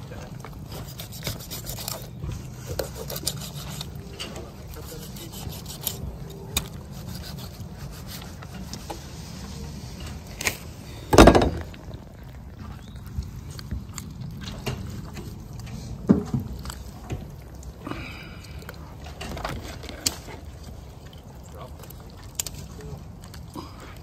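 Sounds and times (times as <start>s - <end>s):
wood scraping and rubbing: 0.0s - 12.7s
heavy thump: 11.1s - 11.8s.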